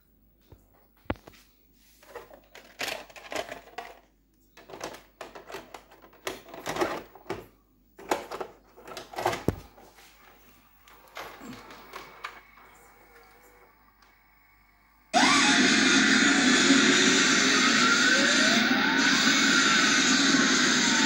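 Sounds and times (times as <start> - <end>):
plastic cassette clicks and rattles: 2.4 - 4.0, 4.6 - 7.4.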